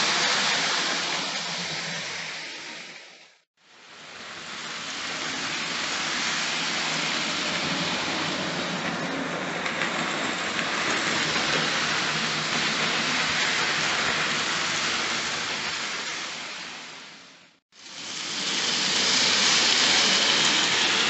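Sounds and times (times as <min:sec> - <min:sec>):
model train wheels rattling on rails: 0:04.3 - 0:16.8, 0:17.8 - 0:21.0.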